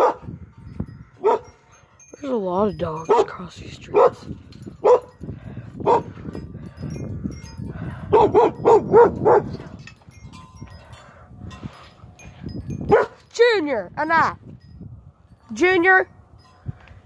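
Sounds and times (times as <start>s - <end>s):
dog barking: 0.0s - 0.3s, 1.2s - 1.5s, 3.9s - 5.2s, 5.8s - 6.1s, 8.1s - 9.6s, 12.9s - 13.2s.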